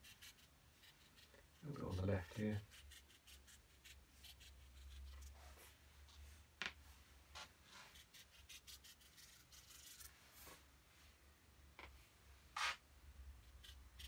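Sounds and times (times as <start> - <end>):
paintbrush strokes on paper: 0.0 - 11.2.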